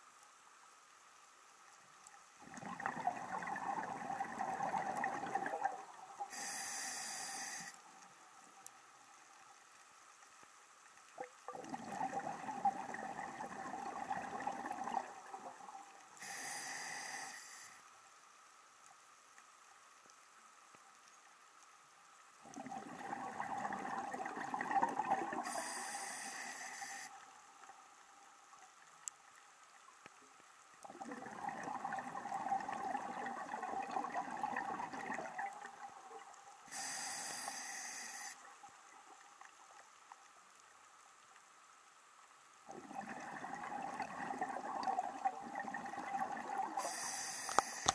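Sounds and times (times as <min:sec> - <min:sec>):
exhaled bubbles rushing: 0:02.4 - 0:06.2, 0:11.5 - 0:15.9, 0:22.4 - 0:25.6, 0:30.8 - 0:36.4, 0:42.7 - 0:46.9
regulator inhale hiss: 0:06.2 - 0:08.0, 0:16.1 - 0:17.9, 0:25.4 - 0:27.3, 0:36.6 - 0:38.5, 0:46.8 - 0:47.9.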